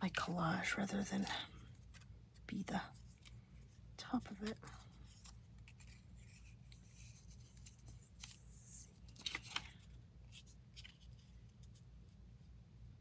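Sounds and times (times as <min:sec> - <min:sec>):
paper crinkling: 0:01.0 - 0:11.8
paper rustling: 0:04.3 - 0:11.8.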